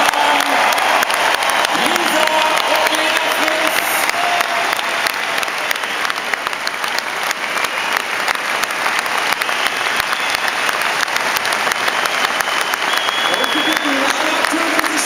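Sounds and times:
stadium crowd applauding: 0.0s - 15.0s.

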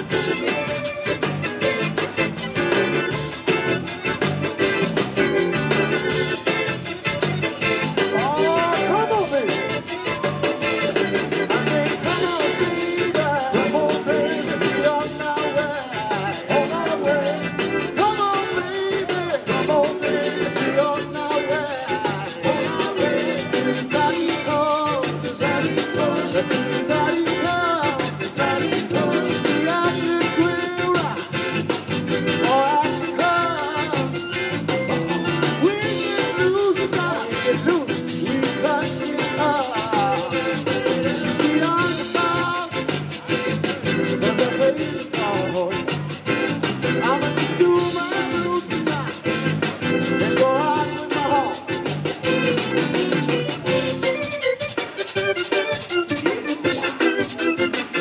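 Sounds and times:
accordion: 0.0s - 58.0s
drums: 0.0s - 58.0s
electric guitars: 0.0s - 58.0s
live band dance music: 0.0s - 58.0s.

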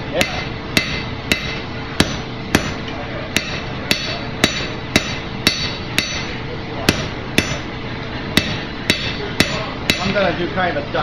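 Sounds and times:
hammer clanging on steel: 0.2s - 7.7s, 8.4s - 10.3s.

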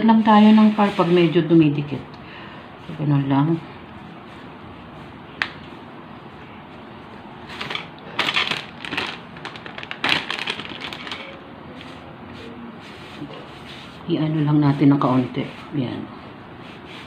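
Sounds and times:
plastic bag crinkling: 7.5s - 11.5s.

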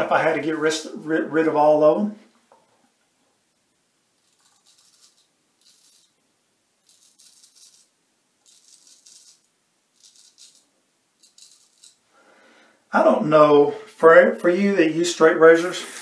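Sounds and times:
razor shaving stubble: 4.2s - 6.1s, 6.8s - 10.6s, 11.2s - 12.0s.

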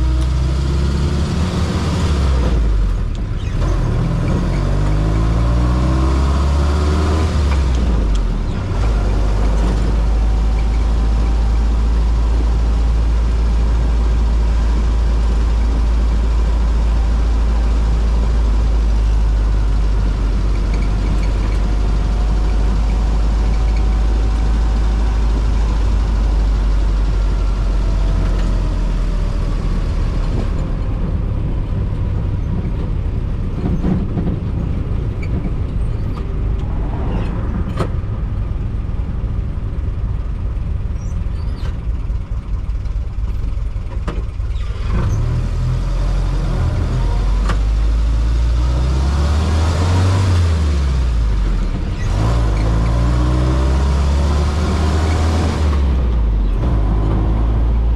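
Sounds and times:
car engine revving: 0.0s - 14.2s, 33.6s - 40.6s, 48.2s - 57.9s.

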